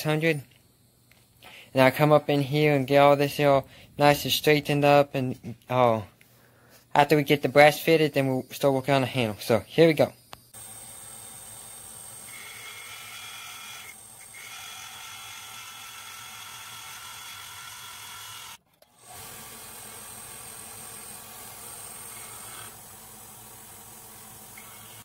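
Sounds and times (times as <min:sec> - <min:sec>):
belt grinder grinding steel blade: 0:11.9 - 0:22.9, 0:24.5 - 0:25.0.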